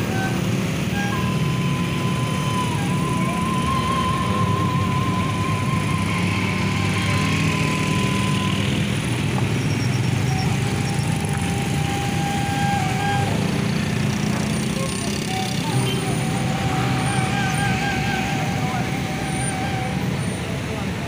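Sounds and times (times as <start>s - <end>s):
motorcycle engines idling: 0.1s - 21.0s.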